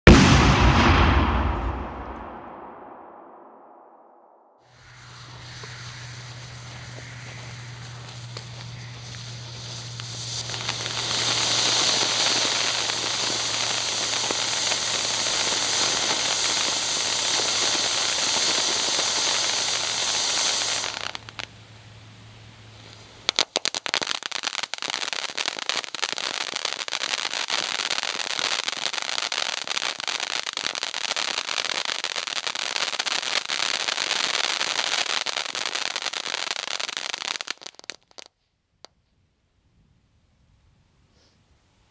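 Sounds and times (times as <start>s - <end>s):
firework crackling: 4.6s - 21.6s, 22.7s - 38.3s
firework hissing spray: 4.7s - 21.5s.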